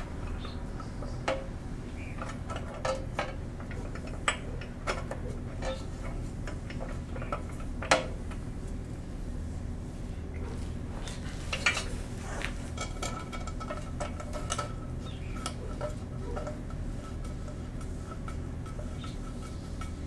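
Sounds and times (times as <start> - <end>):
steady low hum: 0.0 - 20.0
metal clinks and scrapes: 2.2 - 8.2, 11.0 - 20.0.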